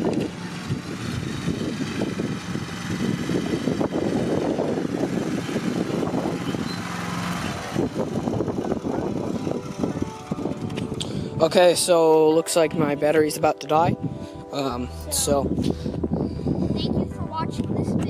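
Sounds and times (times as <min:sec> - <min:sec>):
lawn tractor engine running: 0:00.0 - 0:13.4.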